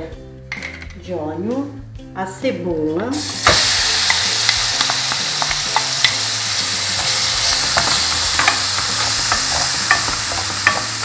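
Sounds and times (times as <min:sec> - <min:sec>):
onion sizzling in oil: 0:03.1 - 0:11.0
wooden spoon stirring: 0:03.3 - 0:11.0.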